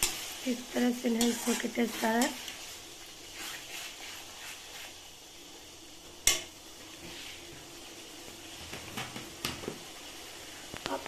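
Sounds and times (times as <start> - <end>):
faint sizzle: 0.0 - 11.0.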